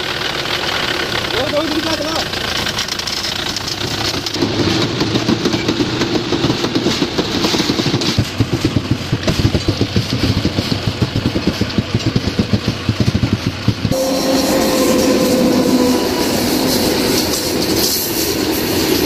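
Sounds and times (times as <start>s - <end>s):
tractor diesel engine chugging: 0.0s - 19.0s.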